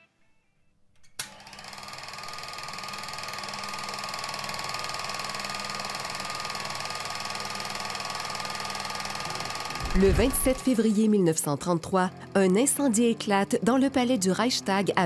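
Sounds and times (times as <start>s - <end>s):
film projector clattering: 1.2s - 9.8s.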